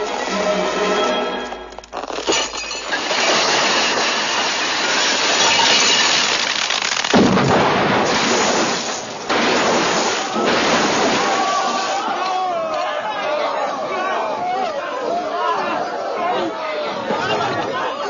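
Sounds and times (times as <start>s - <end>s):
crashing and clinking: 1.5s - 7.4s
comedy body burst blast: 7.0s - 12.0s.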